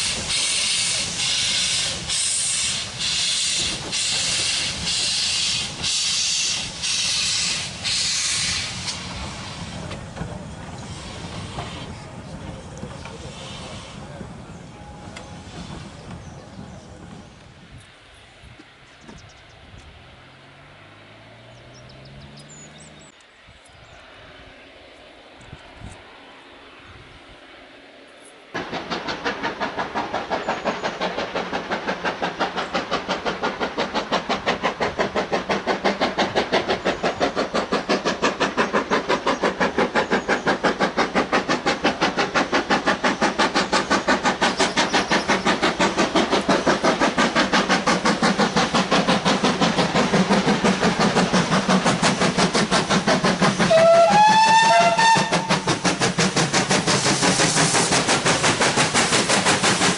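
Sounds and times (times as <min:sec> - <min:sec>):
steam locomotive exhaust beating: 0:00.0 - 0:17.8, 0:28.6 - 0:59.9
steam locomotive whistle: 0:53.6 - 0:55.8.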